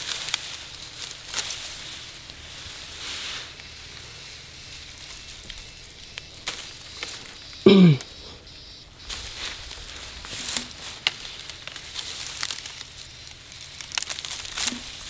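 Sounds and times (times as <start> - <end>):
dry vegetation crackling: 0.0 - 15.0
animal call or grunt: 7.6 - 8.3.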